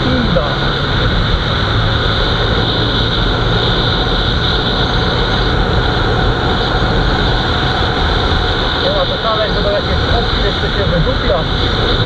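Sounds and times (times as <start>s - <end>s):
motorcycle engine running: 0.0s - 12.0s
wind on microphone: 0.0s - 12.0s.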